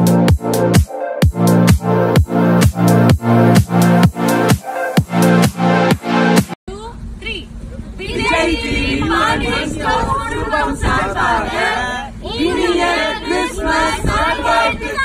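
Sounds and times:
group singing in unison: 8.1s - 15.0s.

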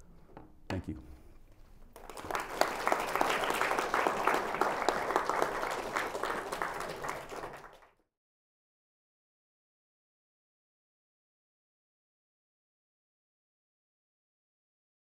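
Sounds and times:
audience applauding: 1.9s - 8.0s.

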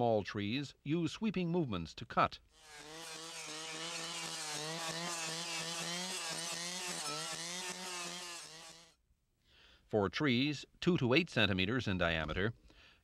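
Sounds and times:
brush saw engine running: 2.5s - 9.0s.

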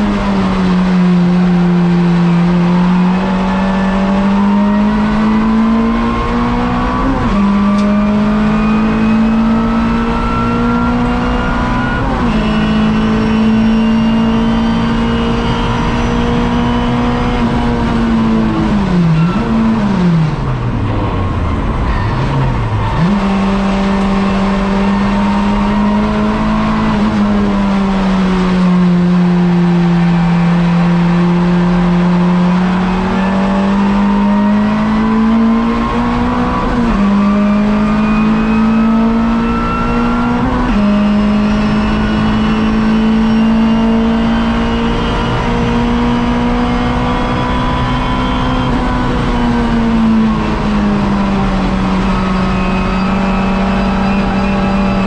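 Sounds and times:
car engine running hard: 0.0s - 55.0s.

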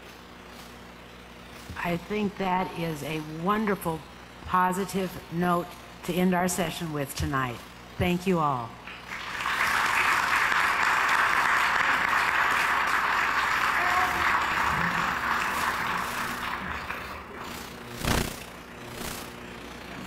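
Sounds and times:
audience applauding: 9.1s - 17.5s.

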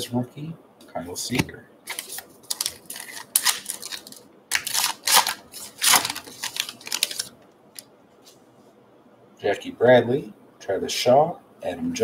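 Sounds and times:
paper wrapper tearing and crinkling: 1.9s - 7.3s.

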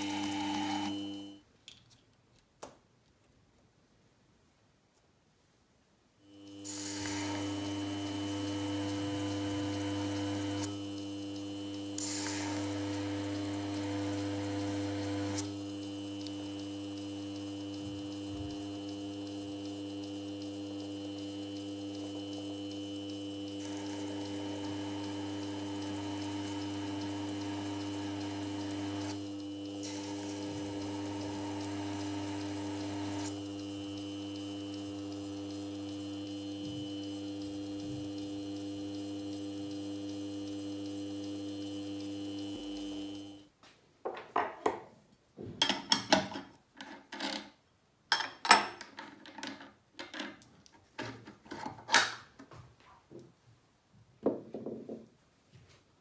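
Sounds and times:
small machine humming: 0.0s - 1.5s, 6.2s - 43.5s.

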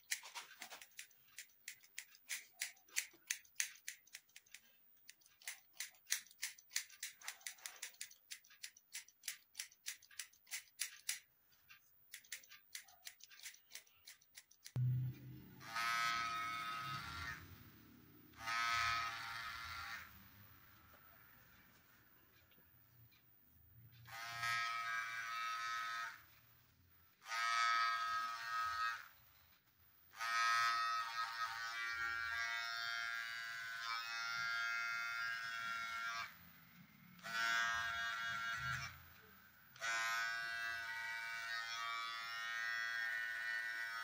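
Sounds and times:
electric hair clipper buzzing: 15.6s - 17.5s, 18.3s - 20.2s, 24.1s - 26.3s, 27.2s - 29.2s, 30.1s - 36.4s, 37.2s - 39.1s, 39.7s - 44.0s.

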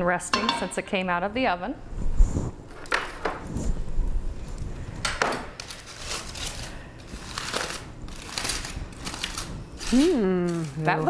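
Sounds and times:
metal spatula knocking baking pan: 0.3s - 0.7s
aluminium foil crinkling: 5.6s - 11.0s.

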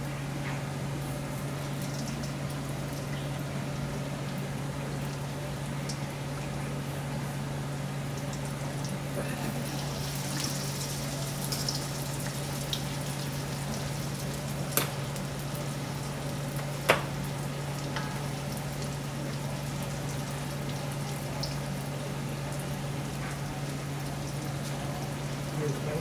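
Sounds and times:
food sizzling in a pan: 9.2s - 25.6s.

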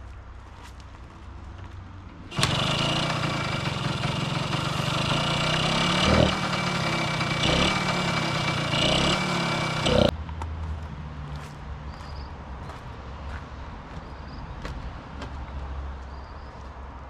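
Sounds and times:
motorcycle engine kick-started: 2.3s - 10.1s
motorcycle throttle blips: 2.3s - 10.1s.

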